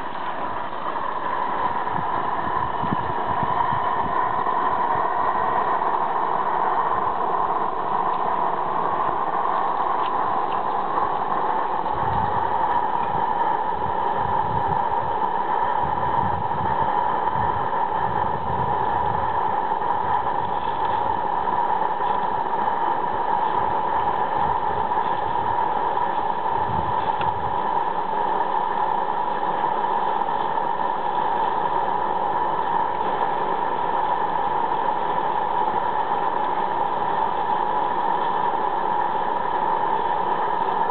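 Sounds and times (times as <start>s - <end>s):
steam locomotive hissing: 0.0s - 40.9s.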